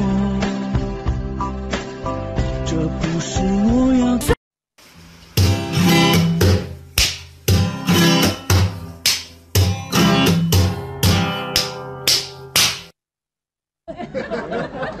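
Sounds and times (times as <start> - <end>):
guitar plucking rhythmic notes: 5.4 - 12.9.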